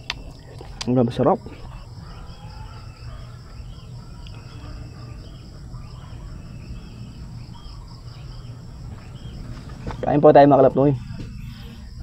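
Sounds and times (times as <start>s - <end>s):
bird chirping: 0.0s - 12.0s
insects buzzing: 0.0s - 12.0s.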